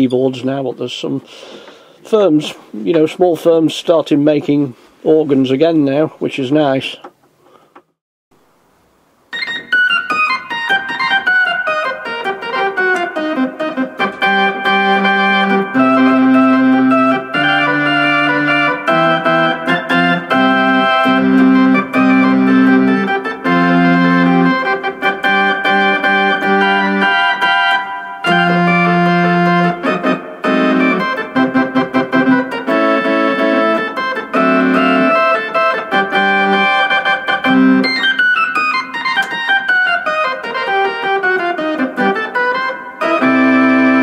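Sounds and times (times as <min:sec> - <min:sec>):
electronic organ playing: 0:09.3 - 0:44.0.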